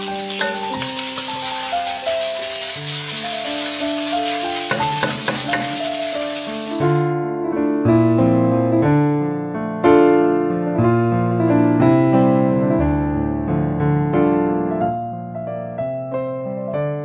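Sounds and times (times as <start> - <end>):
food sizzling in a pan: 0.0 - 7.2
electric piano music: 0.0 - 17.0.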